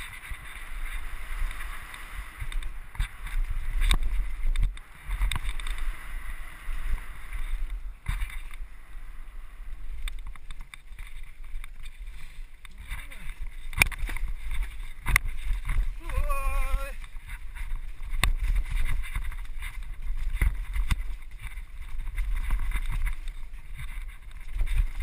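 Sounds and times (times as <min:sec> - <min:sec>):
wind buffeting microphone: 0:00.0 - 0:25.0
tyres rolling on gravel: 0:09.7 - 0:25.0.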